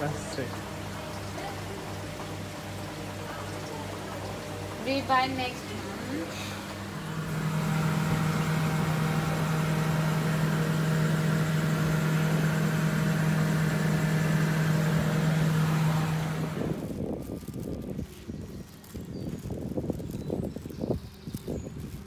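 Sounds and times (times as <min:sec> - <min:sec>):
aquarium pumps humming: 0:00.0 - 0:16.9.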